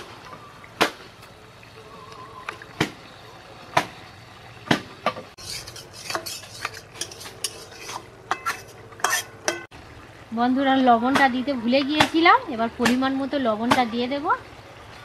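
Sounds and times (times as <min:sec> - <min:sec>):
curry sizzling faintly: 0:00.0 - 0:15.0
metal spatula scraping pot: 0:05.4 - 0:09.7.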